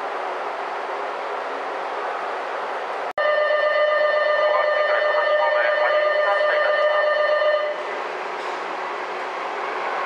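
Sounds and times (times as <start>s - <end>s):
platform departure bell ringing: 3.2s - 7.9s.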